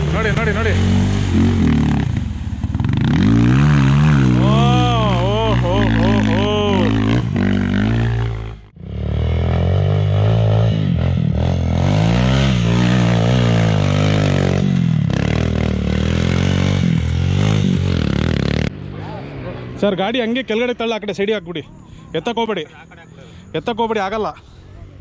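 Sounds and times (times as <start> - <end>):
motorcycle engine revving: 0.0 - 19.8.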